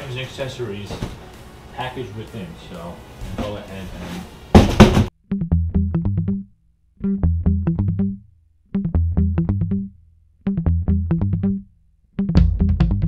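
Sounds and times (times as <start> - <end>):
plucked notes over low bass: 5.2 - 13.0.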